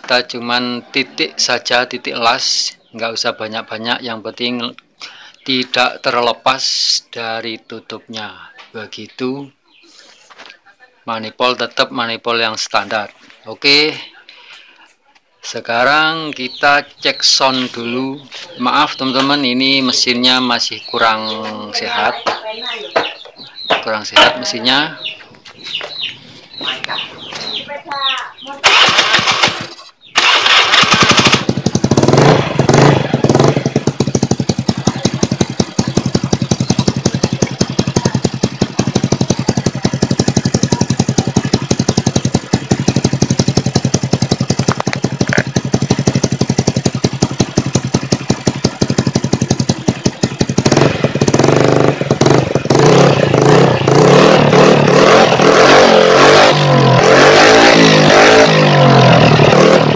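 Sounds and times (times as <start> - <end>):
loud scooter engine idling and revving: 28.6 - 59.9.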